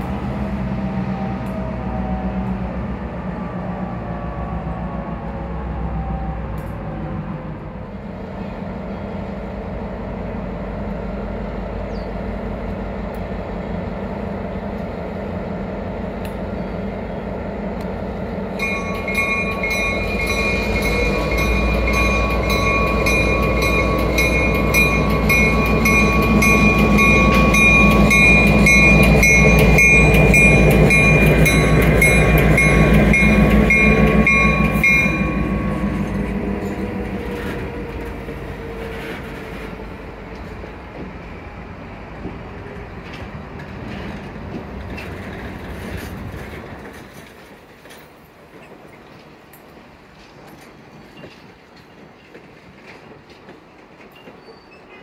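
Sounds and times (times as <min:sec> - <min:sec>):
diesel locomotive engine: 0:00.0 - 0:55.0
rail cars rolling: 0:00.0 - 0:55.0
locomotive bell ringing: 0:18.5 - 0:38.4.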